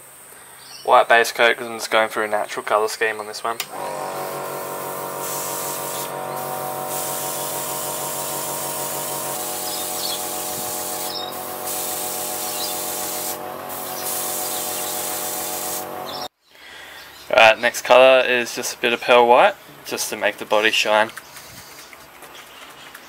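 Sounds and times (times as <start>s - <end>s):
compressor humming: 3.6s - 16.3s
airbrush hissing: 4.0s - 16.3s.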